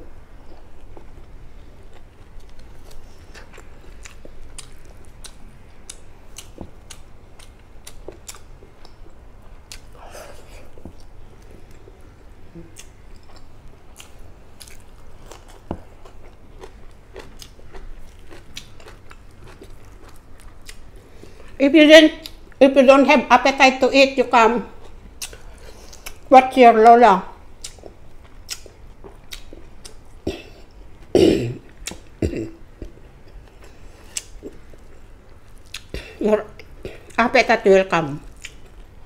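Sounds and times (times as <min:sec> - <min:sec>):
chewing crunchy fried food: 0:00.4 - 0:21.6, 0:24.7 - 0:26.3, 0:27.5 - 0:37.2, 0:38.2 - 0:39.0.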